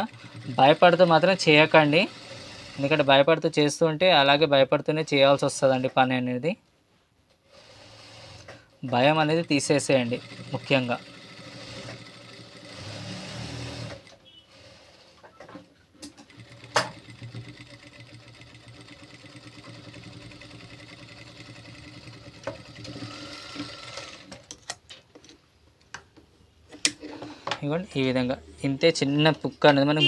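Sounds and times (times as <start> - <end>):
sewing machine stitching: 0.0 - 3.3, 7.5 - 24.6.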